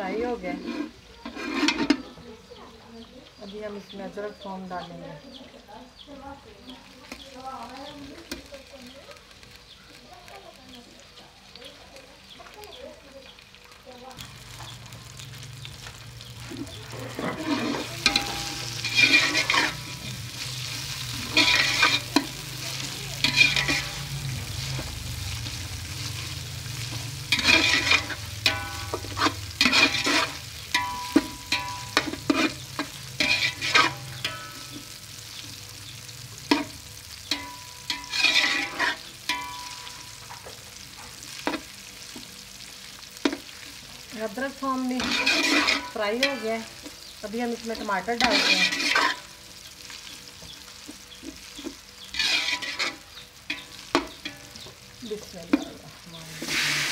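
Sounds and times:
metal spatula scraping metal pot: 0.0 - 2.2, 16.6 - 35.0, 36.5 - 40.5, 44.8 - 49.4, 51.2 - 54.7, 56.3 - 56.9
onions sizzling in hot oil: 0.0 - 56.9.

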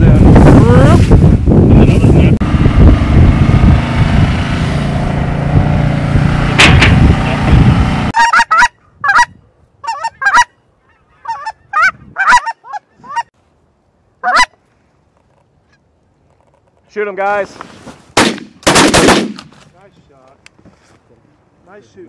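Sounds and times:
wind rumble on microphone: 0.0 - 8.1
goose honking: 8.2 - 13.3, 14.2 - 14.6.

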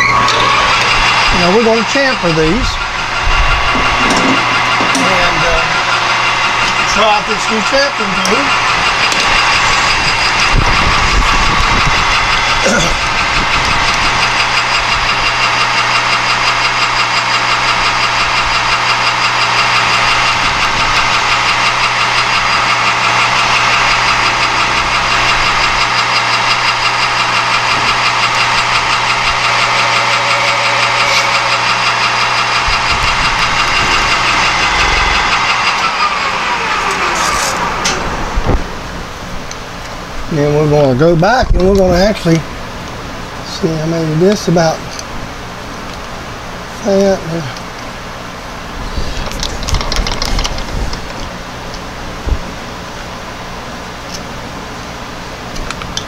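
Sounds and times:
spindle coasting down: 0.0 - 40.0
metal lathe running: 0.0 - 56.0.

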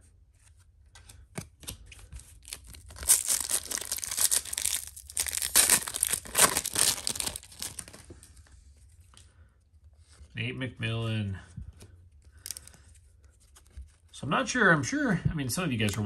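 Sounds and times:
foil wrapper tearing and crinkling: 2.4 - 8.1.

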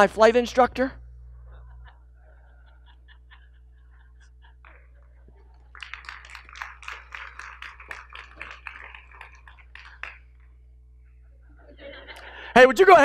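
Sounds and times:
congregation clapping: 4.5 - 10.6.

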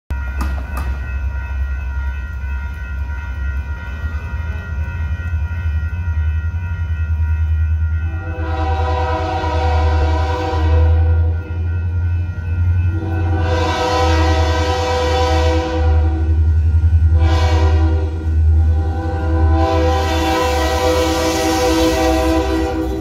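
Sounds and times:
diesel locomotive engine rumble: 0.1 - 23.0
locomotive air horn: 8.0 - 11.4, 12.9 - 16.4, 17.1 - 23.0.

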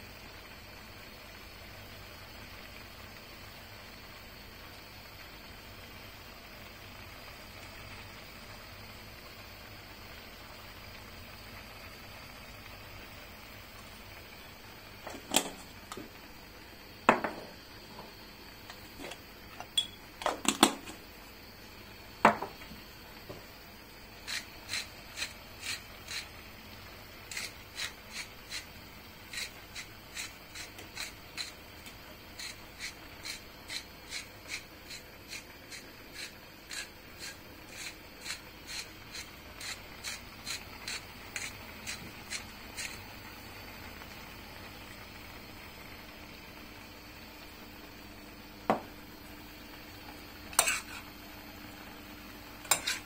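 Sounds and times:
low steady hiss: 0.0 - 52.8
utensil knocks: 17.1 - 17.5, 22.3 - 22.6, 48.7 - 48.9.

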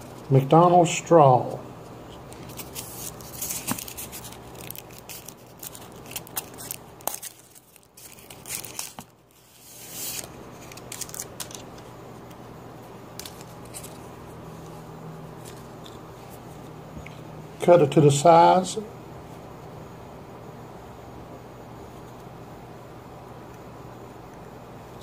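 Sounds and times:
paper wrapper crinkling and tearing: 2.3 - 11.9, 13.1 - 14.1.

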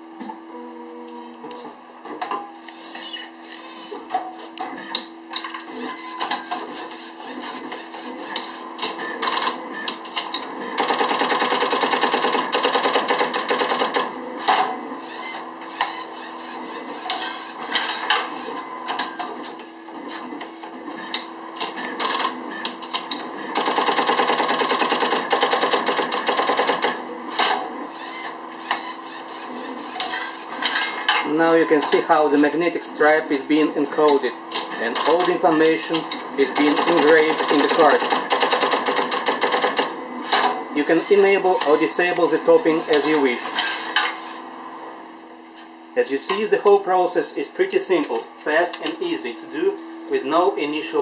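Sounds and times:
rapid steady hammering of punches: 10.8 - 14.1, 23.6 - 27.0, 36.6 - 40.0.

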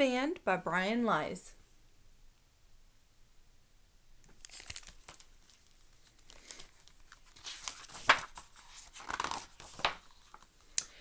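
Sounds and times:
pages turning: 4.3 - 10.6
book binding crinkling: 4.3 - 10.7.

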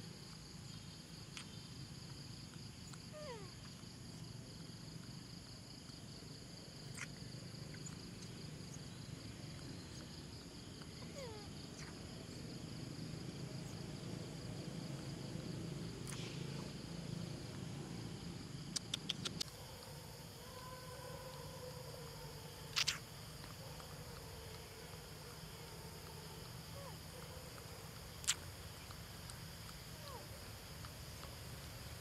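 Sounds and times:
high insect drone: 0.0 - 32.0
quick clicks: 18.7 - 19.5.

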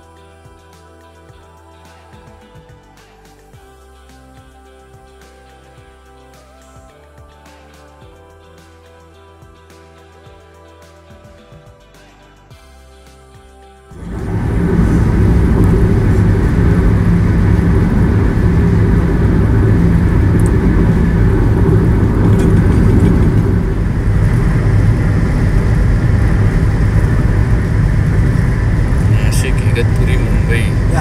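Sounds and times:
car road and engine noise: 13.9 - 31.0.

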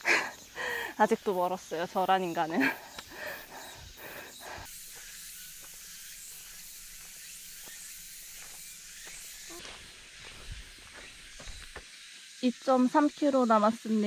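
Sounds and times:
high-pitched forest hiss: 0.0 - 14.0.

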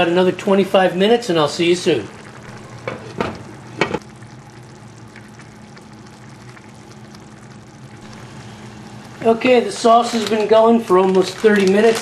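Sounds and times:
sauce simmering and sizzling: 0.0 - 11.9
low hum: 1.5 - 10.4.

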